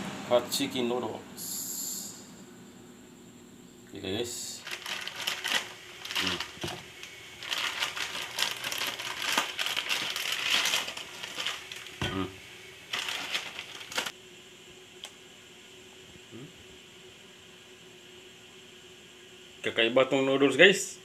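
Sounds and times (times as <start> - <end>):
plastic packaging crinkling: 4.6 - 12.2, 12.8 - 14.1.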